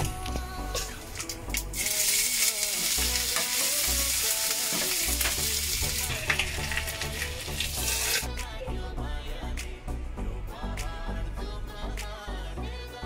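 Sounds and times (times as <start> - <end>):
hot ghee sizzling in a pan: 1.7 - 8.3.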